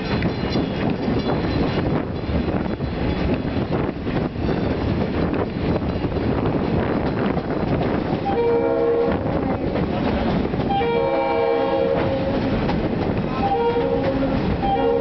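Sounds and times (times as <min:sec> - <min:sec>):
train wheels rumbling: 0:00.0 - 0:15.0
wind: 0:00.0 - 0:15.0
locomotive air horn chord: 0:08.2 - 0:09.3, 0:10.7 - 0:12.5, 0:13.4 - 0:15.0.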